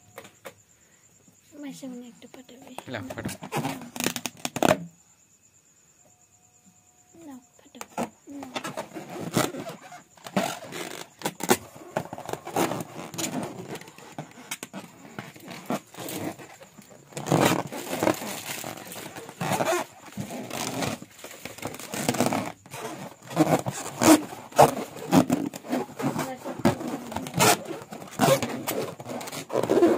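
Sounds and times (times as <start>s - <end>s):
hands rubbing a balloon: 3.1s - 4.8s, 7.8s - 29.9s.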